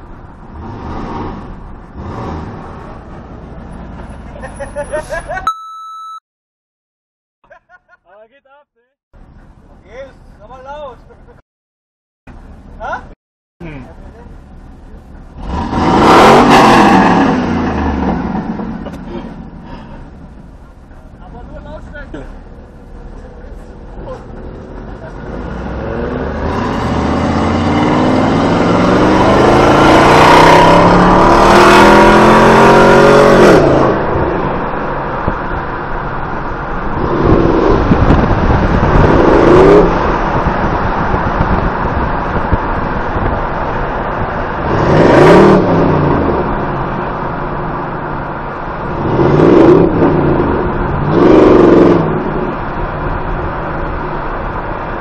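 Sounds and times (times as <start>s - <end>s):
car engine accelerating hard: 15.3s - 19.8s, 23.2s - 55.0s
engine revving in bursts: 15.4s - 18.7s, 25.3s - 34.0s, 48.9s - 52.5s.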